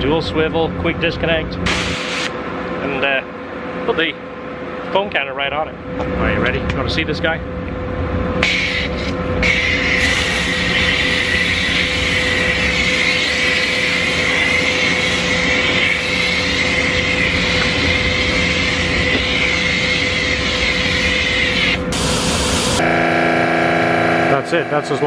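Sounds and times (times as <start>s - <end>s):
steady hum: 0.0s - 25.0s
pressure washer spraying foam: 8.4s - 22.8s.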